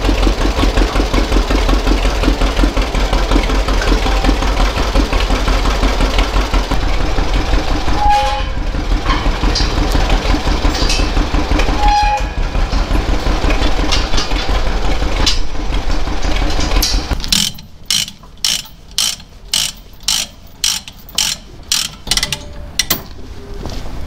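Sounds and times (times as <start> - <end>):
low engine rumble: 0.0 - 24.0
ratchet chain binder clicking: 13.6 - 23.2.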